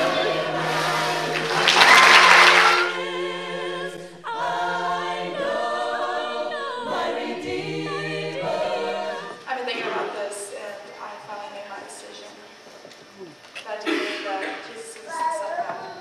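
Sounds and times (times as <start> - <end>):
congregation singing a hymn: 0.0 - 10.5.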